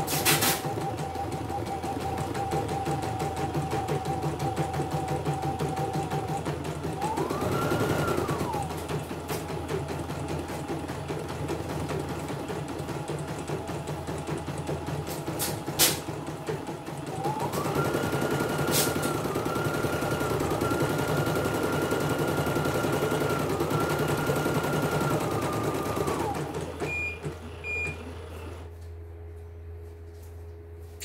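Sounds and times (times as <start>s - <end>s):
embroidery machine motor stitching: 0.0s - 9.5s, 16.9s - 26.8s.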